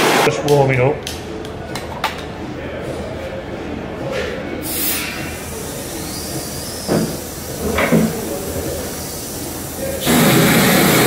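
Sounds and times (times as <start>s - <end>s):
steady hiss: 4.6s - 11.0s.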